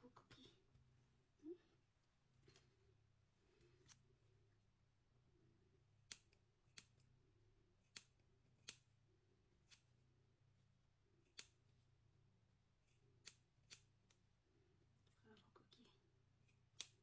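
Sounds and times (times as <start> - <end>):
scissors snipping fur: 3.8 - 4.1, 5.9 - 10.0, 11.2 - 11.9, 12.8 - 14.3, 16.4 - 17.0.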